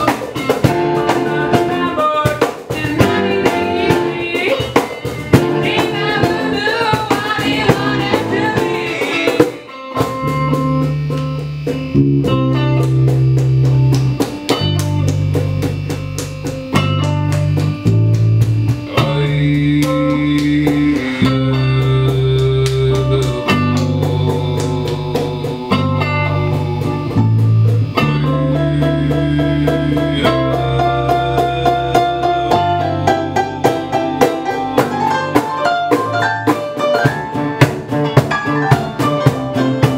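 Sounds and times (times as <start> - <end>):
person singing: 0.0 - 10.2, 18.7 - 37.1
small band playing: 0.0 - 39.9.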